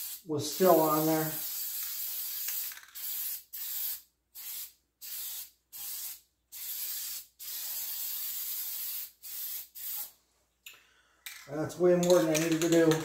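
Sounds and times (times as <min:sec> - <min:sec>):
aerosol spray can hissing: 0:00.0 - 0:10.1.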